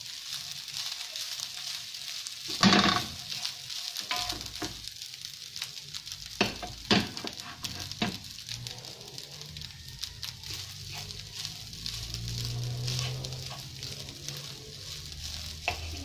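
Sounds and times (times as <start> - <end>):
rice sizzling in frying pan: 0.0 - 16.0
wooden spoon scraping pan: 6.4 - 8.6, 10.4 - 16.0.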